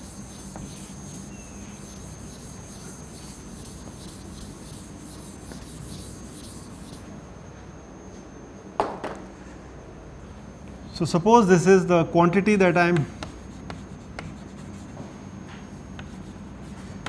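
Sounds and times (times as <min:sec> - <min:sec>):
duster wiping blackboard: 0:00.0 - 0:07.1.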